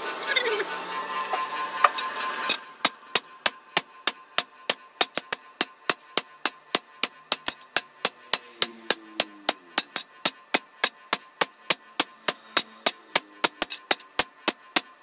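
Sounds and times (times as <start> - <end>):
hammer striking metal on anvil: 1.8 - 15.0.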